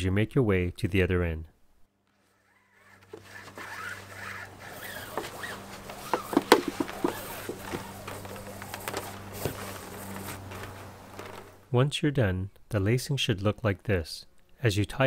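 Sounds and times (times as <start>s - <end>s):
rope rustling and scraping: 2.1s - 11.7s
low hum: 3.2s - 11.7s.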